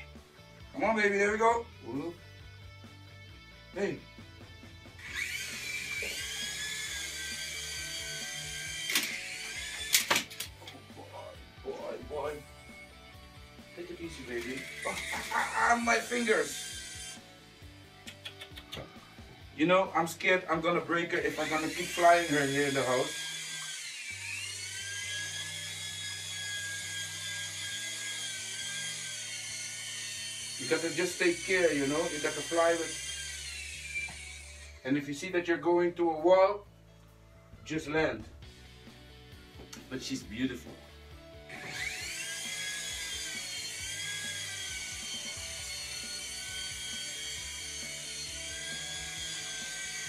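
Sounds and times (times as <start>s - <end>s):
toy helicopter rotor whine: 5.0s - 17.9s, 20.6s - 34.9s, 41.5s - 50.0s.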